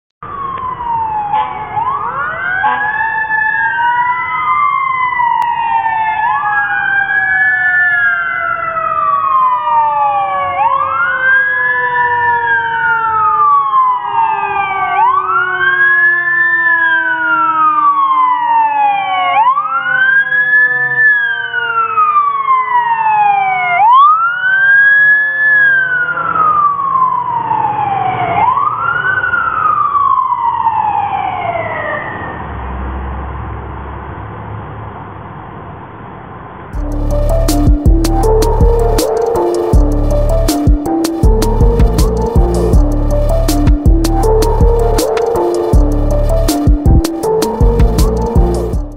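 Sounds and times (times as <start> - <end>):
second siren tone sliding down: 0.2 - 32.6, 36.8 - 48.9
fire engine siren wailing: 0.2 - 32.7, 36.8 - 48.9
truck engine rumbling: 36.8 - 48.9.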